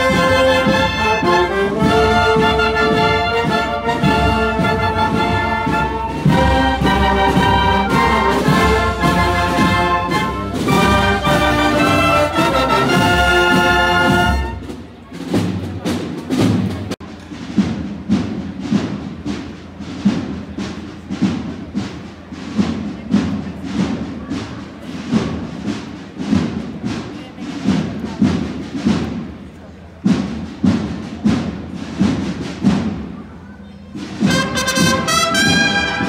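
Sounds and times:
wind band playing chords: 0:00.0 - 0:23.9, 0:28.3 - 0:36.0
marching band drums: 0:00.0 - 0:36.0.

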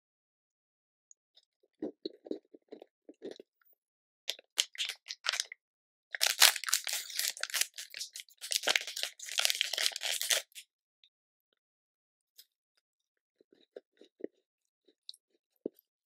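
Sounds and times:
plastic wrapper crinkling: 0:04.6 - 0:05.5, 0:06.2 - 0:10.6.

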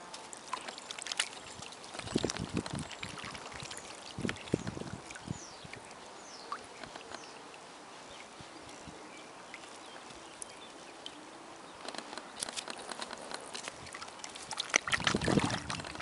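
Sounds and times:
small water splashes: 0:00.0 - 0:16.0
soft water noise: 0:00.0 - 0:16.0
swan bill clicks: 0:06.6 - 0:07.3, 0:11.8 - 0:16.0.

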